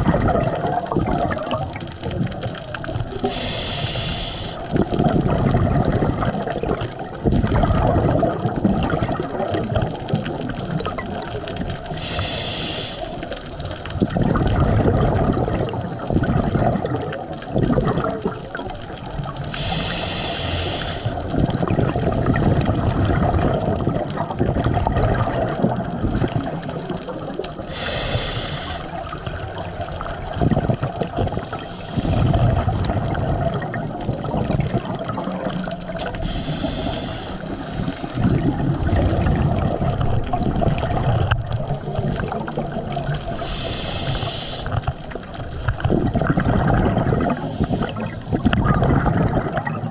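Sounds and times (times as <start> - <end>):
exhaled bubbles gurgling: 0.0 - 49.9
diver inhaling through regulator: 3.2 - 5.0, 11.9 - 13.4, 19.4 - 21.3, 27.6 - 29.0, 31.3 - 32.6, 36.1 - 38.4, 41.7 - 44.9, 47.3 - 48.6.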